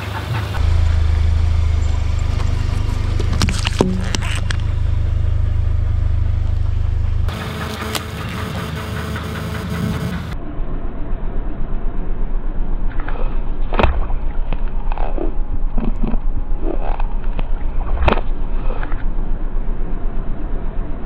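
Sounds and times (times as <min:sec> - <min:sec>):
tyre rolling low rumble: 0:00.3 - 0:08.4.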